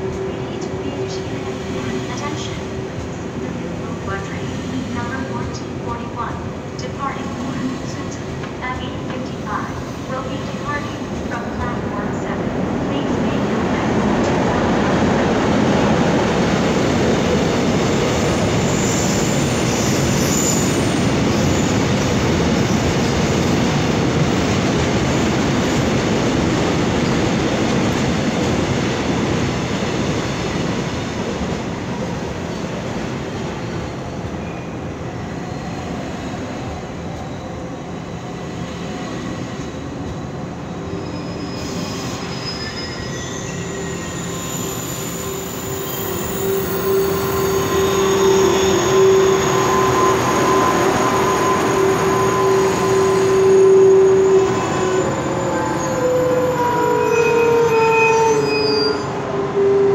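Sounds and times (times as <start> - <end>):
wheel squeal: 41.0 - 59.1.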